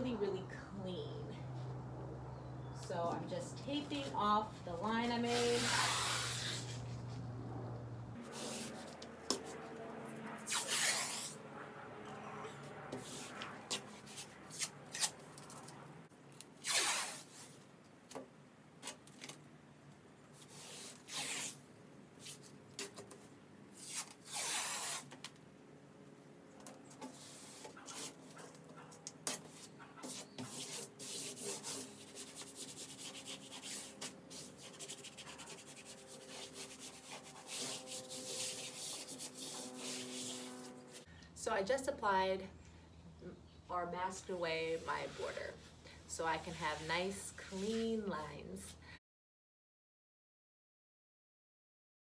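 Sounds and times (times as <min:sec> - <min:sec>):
tape rubbed down by hand: 0:05.2 - 0:07.3, 0:08.2 - 0:09.8, 0:10.4 - 0:11.4, 0:12.9 - 0:15.7, 0:16.6 - 0:17.6, 0:20.4 - 0:25.4, 0:26.9 - 0:41.1, 0:44.7 - 0:45.7, 0:46.4 - 0:47.8
tape pulled off roll: 0:16.5 - 0:18.2, 0:20.4 - 0:21.6, 0:23.8 - 0:25.4.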